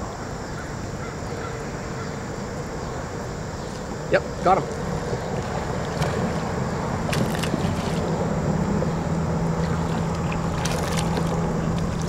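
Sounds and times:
low hum: 0.0 - 12.0
steady rushing noise: 1.7 - 12.0
fish splashing in water: 5.0 - 12.0.

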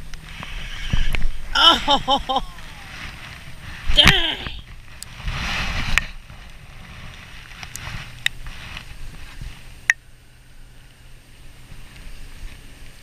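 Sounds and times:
wind on microphone: 0.0 - 9.9
rain hiss: 0.0 - 13.0.

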